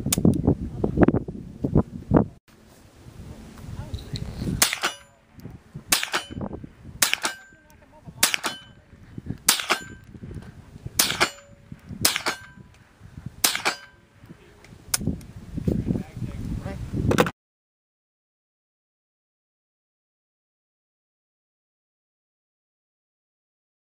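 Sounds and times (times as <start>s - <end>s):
rifle shots cracking: 4.6s - 5.2s, 5.9s - 7.6s, 8.2s - 8.8s, 9.4s - 10.0s, 11.0s - 12.6s, 13.4s - 14.0s.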